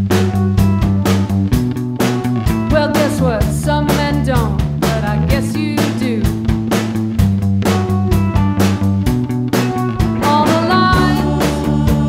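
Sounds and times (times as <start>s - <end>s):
bass guitar: 0.0s - 12.0s
drum beat: 0.0s - 12.0s
electric guitar: 0.0s - 12.0s
woman singing: 2.7s - 6.3s, 10.2s - 12.0s.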